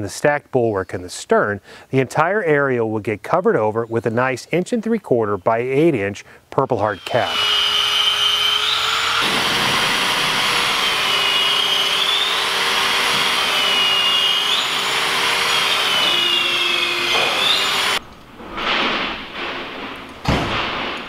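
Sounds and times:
cordless drill boring into wood: 0:06.9 - 0:18.0.

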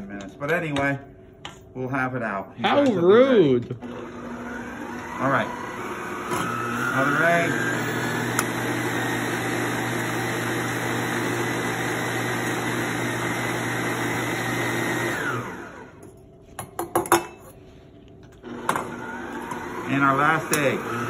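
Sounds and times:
stand mixer running: 0:03.8 - 0:16.0, 0:18.4 - 0:21.0.

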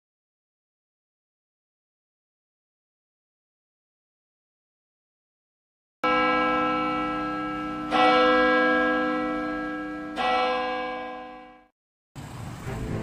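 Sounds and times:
church bell tolling: 0:06.0 - 0:11.7
soft music: 0:12.6 - 0:13.0.

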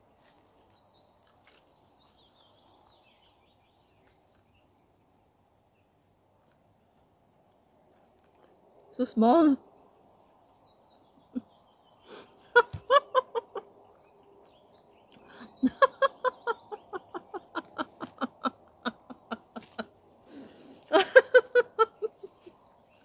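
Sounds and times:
woman laughing hard: 0:12.5 - 0:13.7, 0:15.4 - 0:19.9, 0:20.9 - 0:22.5.

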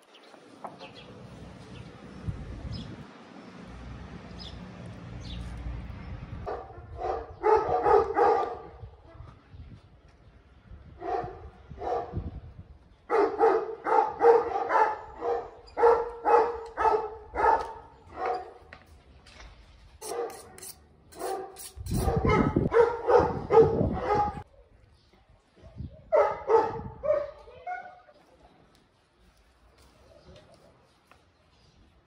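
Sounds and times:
dog barking: 0:06.4 - 0:08.8, 0:11.0 - 0:12.2, 0:13.1 - 0:18.6, 0:20.0 - 0:20.6, 0:21.2 - 0:24.4, 0:26.0 - 0:28.0.

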